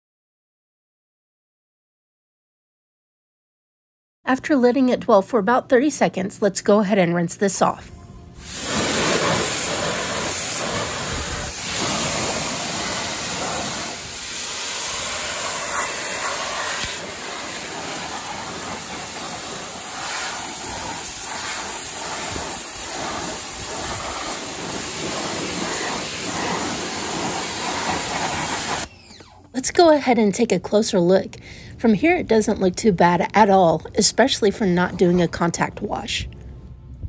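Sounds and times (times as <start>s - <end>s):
pressure washer spraying water: 8.4s - 29.2s.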